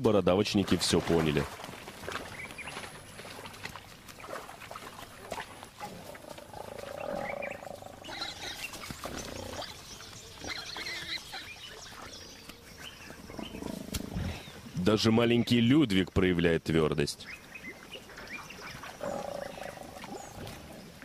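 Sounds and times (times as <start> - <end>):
wild pigs grunting: 4.2 - 14.8, 18.0 - 21.0.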